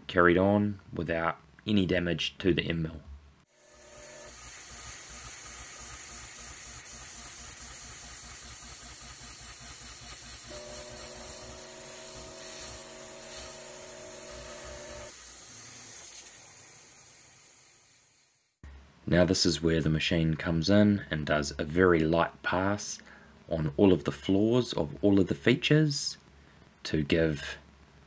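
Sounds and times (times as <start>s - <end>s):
coolant nozzle hissing: 3.6s - 18.2s
steady machine hum: 10.3s - 15.2s.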